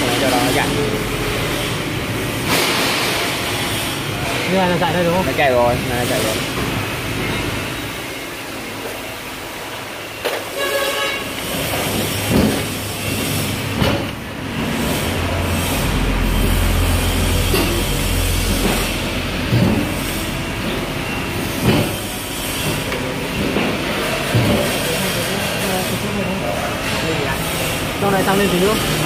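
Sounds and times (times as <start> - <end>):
short horn-like tone: 10.6 - 11.3.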